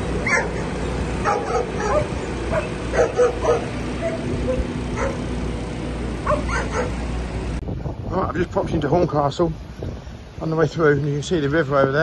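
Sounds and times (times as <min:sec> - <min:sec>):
low engine drone: 0:00.0 - 0:08.1
dog barking in sharp yips: 0:00.2 - 0:05.2, 0:06.2 - 0:07.0.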